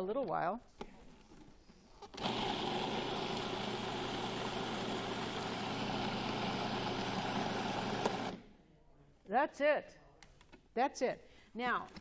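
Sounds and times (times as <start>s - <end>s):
food processor motor chopping: 2.2s - 8.4s.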